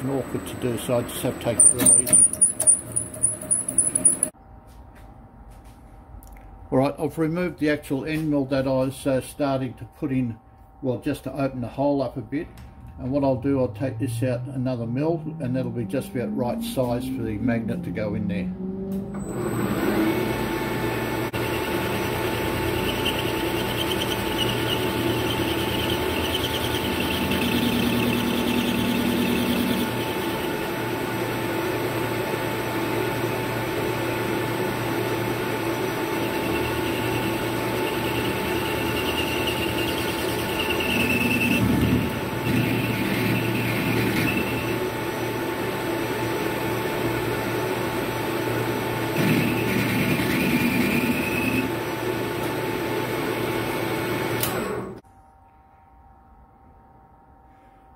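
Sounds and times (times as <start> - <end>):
cutter squealing: 0.0 - 4.3, 19.2 - 30.8, 35.4 - 45.3, 49.2 - 52.0
metal lathe whining: 0.0 - 4.3, 19.2 - 52.8.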